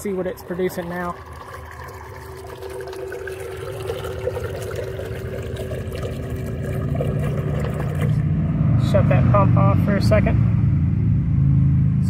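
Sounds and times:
pump motor hum: 0:00.0 - 0:08.3
water pouring: 0:00.0 - 0:08.3
low rumble: 0:06.4 - 0:12.0.

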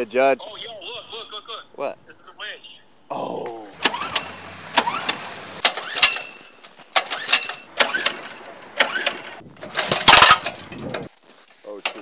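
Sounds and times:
metal clicks and clanks: 0:03.8 - 0:11.2, 0:11.8 - 0:12.0
metallic clatter: 0:03.8 - 0:11.2.

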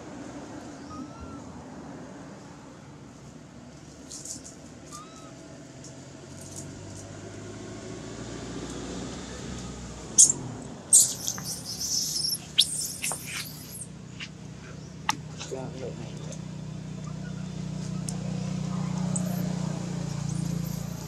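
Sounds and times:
baby monkey shrill squeals: 0:00.8 - 0:01.4, 0:04.9 - 0:05.4, 0:10.2 - 0:13.9
faint high chirps: 0:10.2 - 0:14.8.

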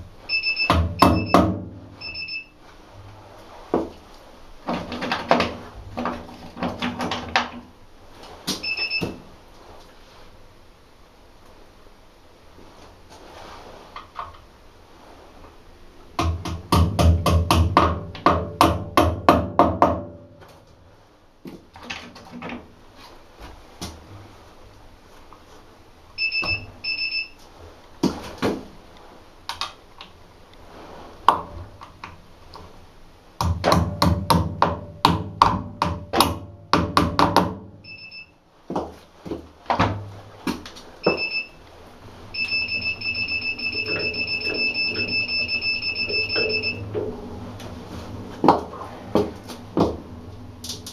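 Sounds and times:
continuous high beeping: 0:00.2 - 0:02.6, 0:08.6 - 0:09.2, 0:26.2 - 0:27.4, 0:37.8 - 0:38.4, 0:41.0 - 0:41.6, 0:42.3 - 0:47.0
short high electronic beeps: 0:00.3 - 0:01.4, 0:02.0 - 0:02.5, 0:08.6 - 0:09.1, 0:42.4 - 0:46.8
hammer striking tire rim: 0:16.2 - 0:20.2, 0:33.4 - 0:37.7.

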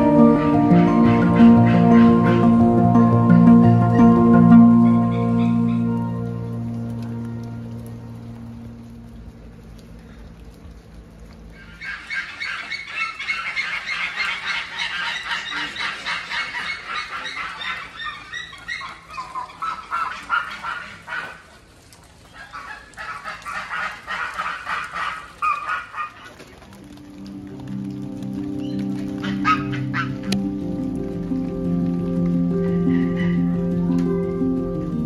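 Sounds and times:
flock of birds calling: 0:00.0 - 0:06.3, 0:11.6 - 0:21.5, 0:28.4 - 0:30.4, 0:32.5 - 0:33.8.

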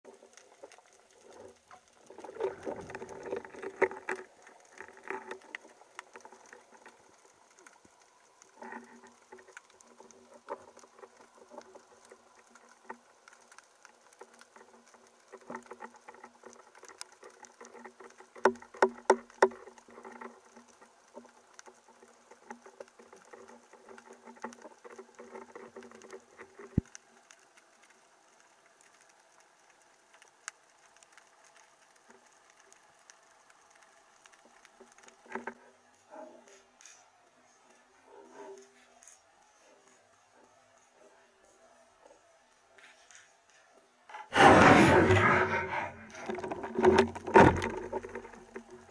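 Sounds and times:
underwater crackle of clicks: 0:00.1 - 0:37.1, 0:42.0 - 0:48.9.

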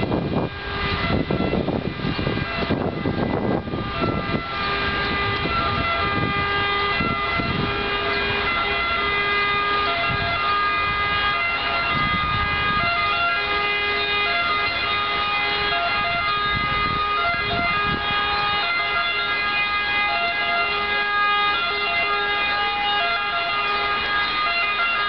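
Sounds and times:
wind rumbling on microphone: 0:00.0 - 0:23.0
sustained steady tones: 0:00.0 - 0:25.0.

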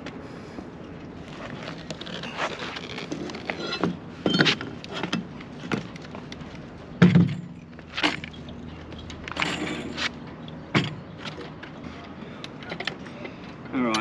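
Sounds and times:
outboard motor knocks and clunks: 0:07.0 - 0:08.3, 0:10.7 - 0:11.4.

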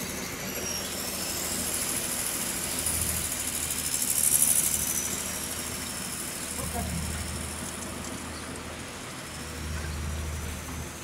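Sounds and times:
diesel generator humming: 0:00.0 - 0:11.0
high whine: 0:00.0 - 0:11.0.

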